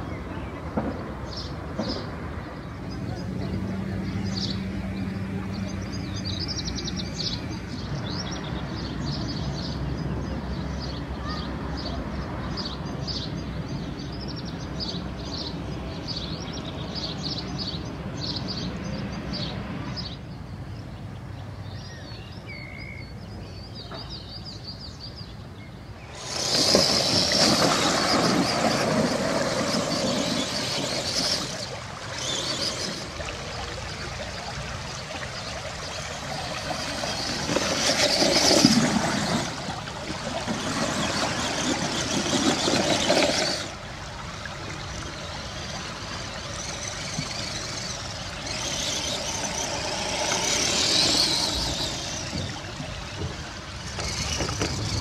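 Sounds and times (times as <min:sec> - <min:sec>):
low outdoor rumble: 0:25.5 - 0:55.0
small birds chirping: 0:44.8 - 0:55.0.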